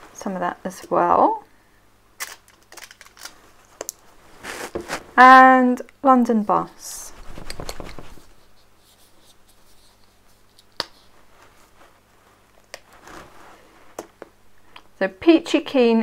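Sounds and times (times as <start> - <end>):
plastic bottle rustling: 2.2 - 5.2.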